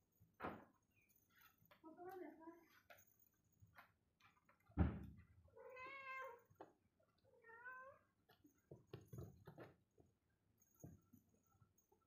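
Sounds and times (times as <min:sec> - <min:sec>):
low thump: 0:04.8 - 0:05.2
cat meowing: 0:05.6 - 0:06.4, 0:07.4 - 0:08.1.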